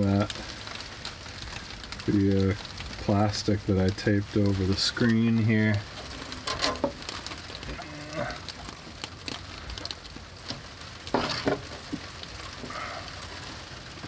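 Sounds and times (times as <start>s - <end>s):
plastic crinkling and clicking: 0.0s - 14.0s
rain pattering on plastic sheeting: 0.0s - 14.0s.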